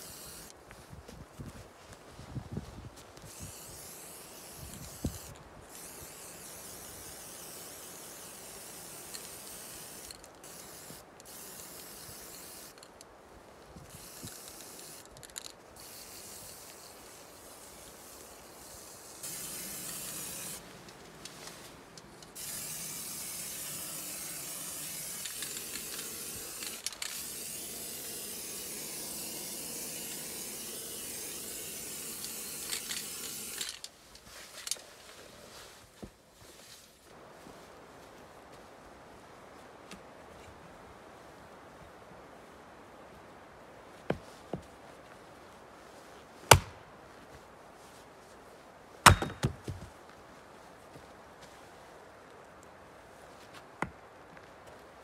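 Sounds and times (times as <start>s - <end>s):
spray paint can hissing: 0.0s - 0.5s, 3.3s - 12.9s, 13.9s - 20.6s, 22.0s - 33.9s.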